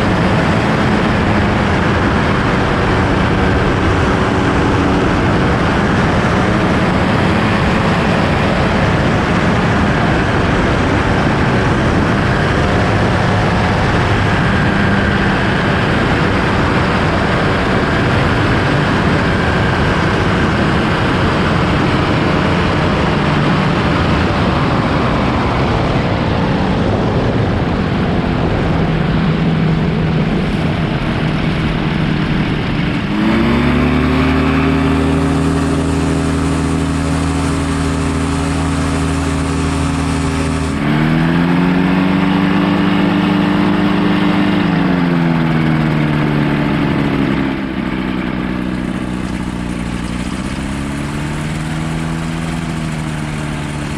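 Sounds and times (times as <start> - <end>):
light aircraft engine drone: 0.0 - 53.9
wind rush over microphone: 0.0 - 53.9.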